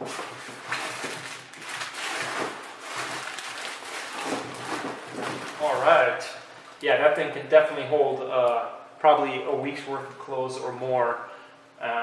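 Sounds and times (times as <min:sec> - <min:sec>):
bag fabric rustling: 0:00.0 - 0:06.8
plastic wrapping crinkling: 0:00.0 - 0:06.8.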